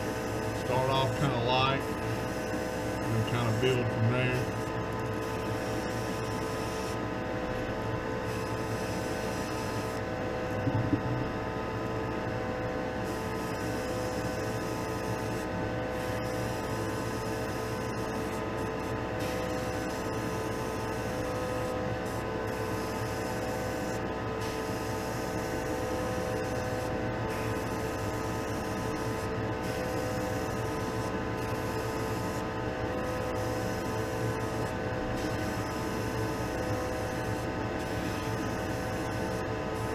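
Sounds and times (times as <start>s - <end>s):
exhaust fan humming: 9.0s - 12.7s
knock: 10.6s - 11.2s.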